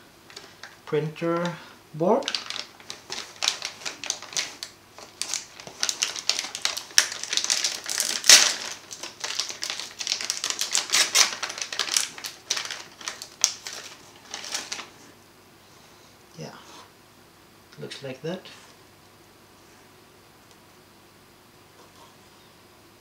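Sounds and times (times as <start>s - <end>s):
plastic packaging crinkling: 0.3s - 15.1s.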